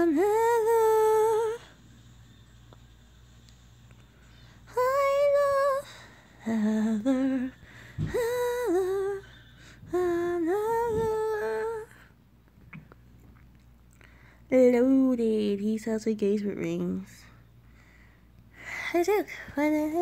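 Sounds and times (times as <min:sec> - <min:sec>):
person humming a tune: 0:04.8 - 0:12.0.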